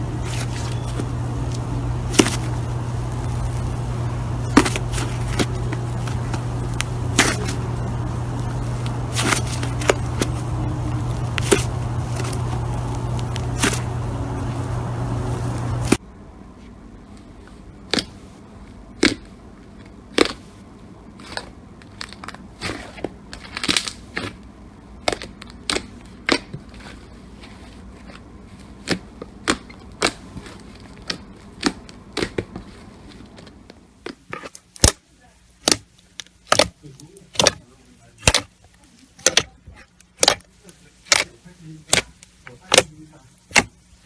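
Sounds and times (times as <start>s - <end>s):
steady hum and hiss: 0.0s - 44.0s.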